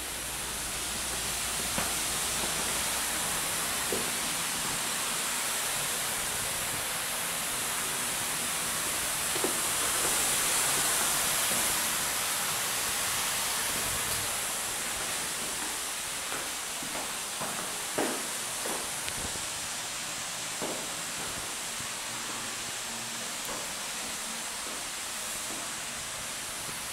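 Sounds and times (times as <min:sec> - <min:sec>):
steady hiss: 0:00.0 - 0:26.9.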